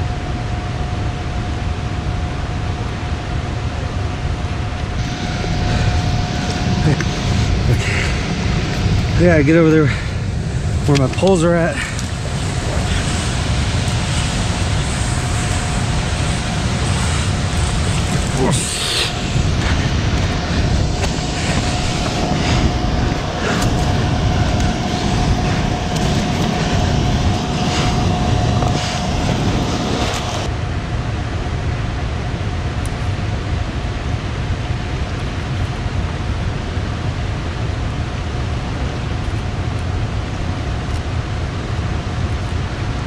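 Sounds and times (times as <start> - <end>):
thin steady tone: 4.9 - 30.6
footsteps crunching over rock: 19.4 - 26.6.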